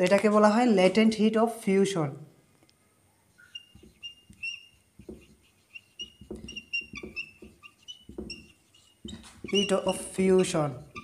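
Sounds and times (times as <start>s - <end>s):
whiteboard marker squeaking: 3.3s - 11.0s
marker tapping on board: 3.4s - 11.0s.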